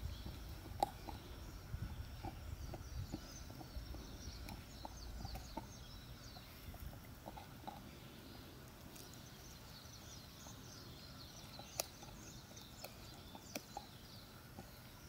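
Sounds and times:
dog teeth clicking on bone: 0:00.2 - 0:01.3, 0:02.2 - 0:05.8, 0:11.4 - 0:14.0.

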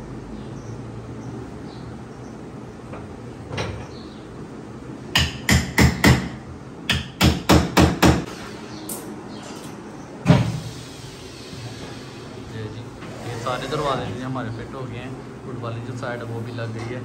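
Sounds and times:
hammer striking wood: 0:05.2 - 0:08.3.

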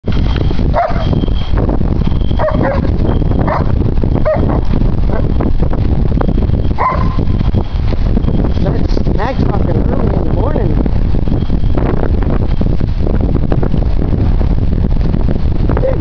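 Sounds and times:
wind rumble on microphone: 0:00.0 - 0:16.0
dogs yipping and barking: 0:00.7 - 0:01.2, 0:02.3 - 0:05.3, 0:06.8 - 0:07.3.

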